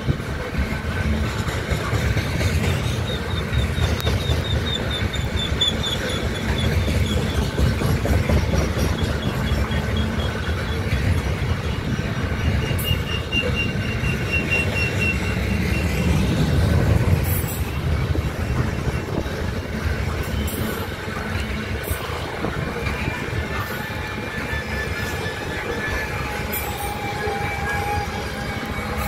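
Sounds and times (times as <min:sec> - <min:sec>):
train wheels rumbling on rails: 0:00.0 - 0:29.0
thin metallic squeal: 0:23.6 - 0:29.0.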